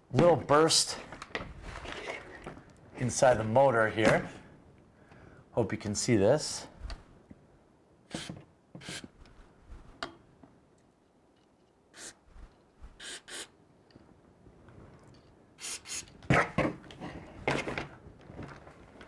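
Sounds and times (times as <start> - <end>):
aerosol spray hissing: 12.0 - 12.2, 13.0 - 13.5, 15.6 - 16.1.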